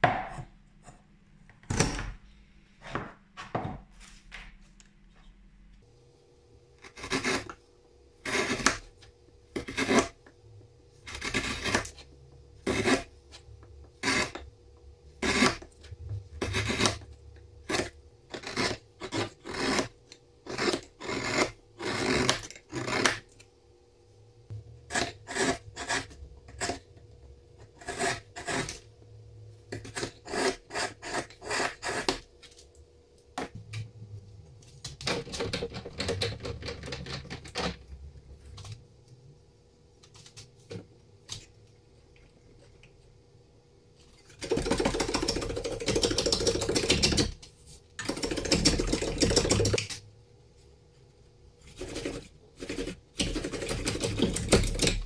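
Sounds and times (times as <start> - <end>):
chisel scraping wood: 6.8 - 7.6, 8.2 - 8.8, 9.6 - 10.2, 11.0 - 12.0, 12.6 - 13.4, 14.0 - 14.4, 15.2 - 23.2, 24.9 - 26.9, 27.6 - 28.9, 29.7 - 32.3.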